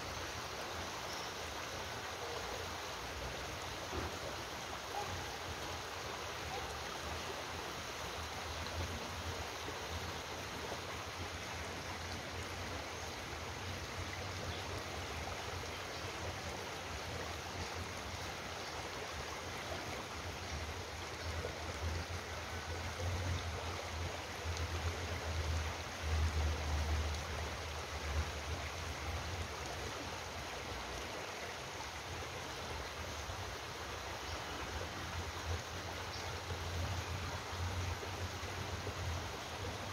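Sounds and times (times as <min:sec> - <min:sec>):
stream flowing: 0:00.0 - 0:39.9.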